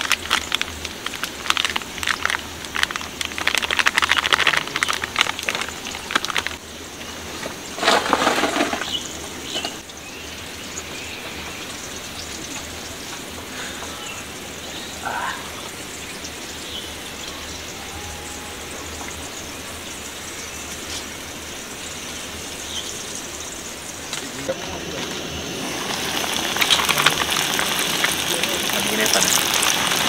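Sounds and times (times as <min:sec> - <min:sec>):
fritters frying in hot oil: 0:25.7 - 0:30.0.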